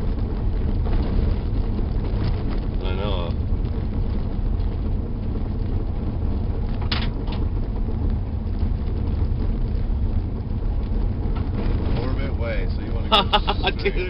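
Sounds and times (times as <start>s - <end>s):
car engine and road noise: 0.0s - 14.0s.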